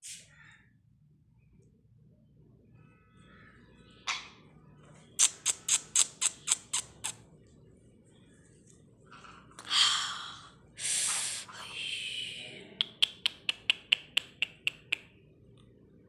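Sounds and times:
parakeet clicking chirps: 5.2 - 7.2, 12.8 - 15.1
parakeet hissing squawk: 5.2 - 7.2.

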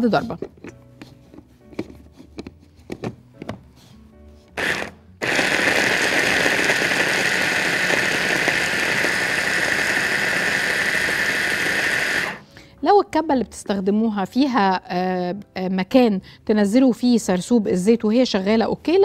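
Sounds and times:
electric food chopper running: 4.6 - 12.4.

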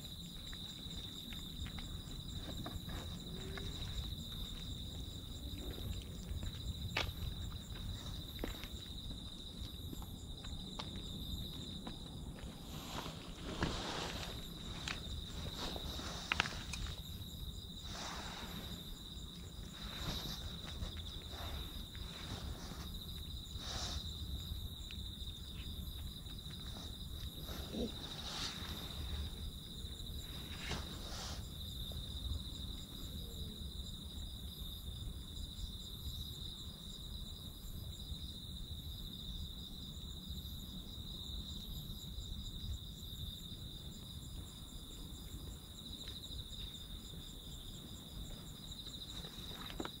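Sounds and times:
faint high insect chirp: 0.0 - 50.0.

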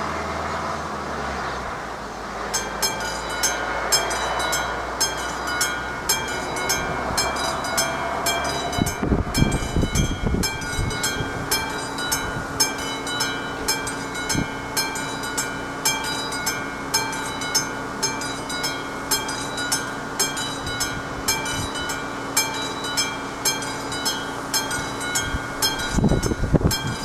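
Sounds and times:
level crossing warning bell ringing: 2.4 - 27.0.

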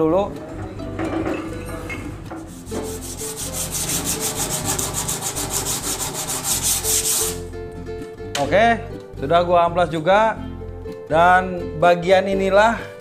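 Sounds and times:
sandpaper rubbing on metal: 2.4 - 7.4.

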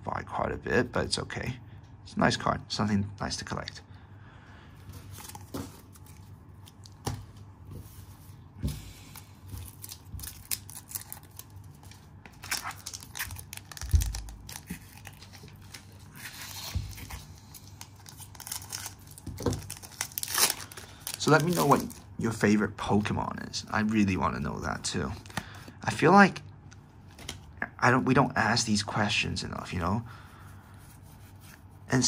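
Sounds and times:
foil wrappers crinkling: 9.0 - 22.4.

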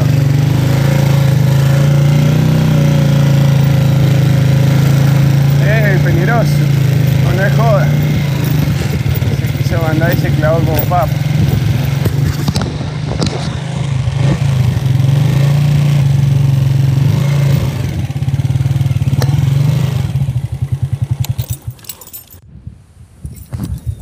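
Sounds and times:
rattles: 0.0 - 13.6, 21.0 - 22.4
small motorcycle engine running: 0.0 - 22.4.

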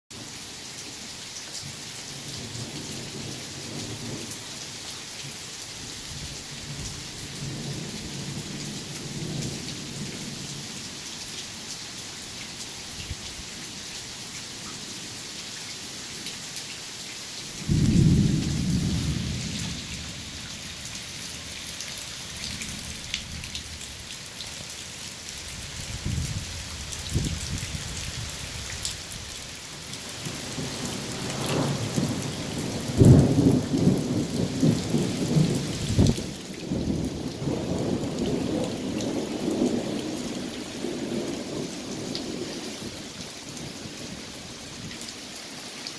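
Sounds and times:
rain hissing: 2.3 - 45.7
thunder rumbling: 17.6 - 20.9, 30.3 - 42.5.

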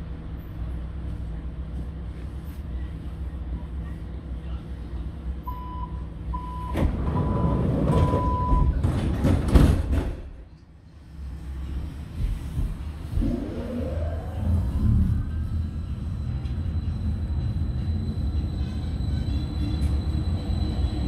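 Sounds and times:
train humming at station: 0.0 - 21.0
train doors sliding shut: 6.6 - 10.4.

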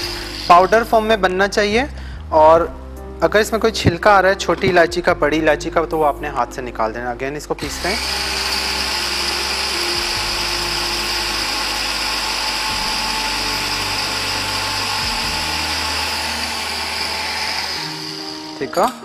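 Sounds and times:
electric spice grinder whirring: 0.0 - 0.8, 7.6 - 18.8.

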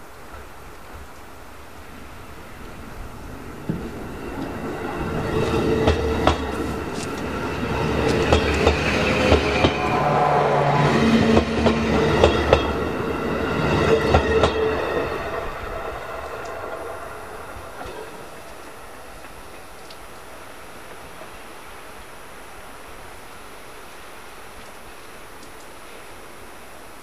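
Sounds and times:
train hum: 0.0 - 27.0
train wheels clicking over rail joints: 3.6 - 9.9, 11.2 - 13.0, 13.9 - 14.8.

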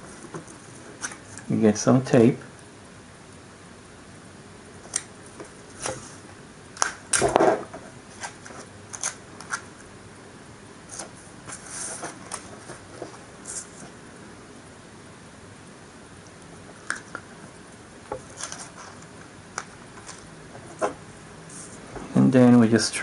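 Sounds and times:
paper and tape rustling: 18.2 - 21.8.

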